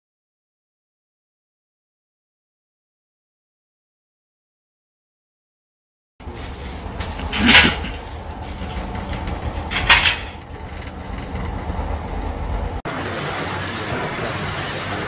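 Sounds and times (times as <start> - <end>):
diesel engine rumbling: 6.2 - 15.0.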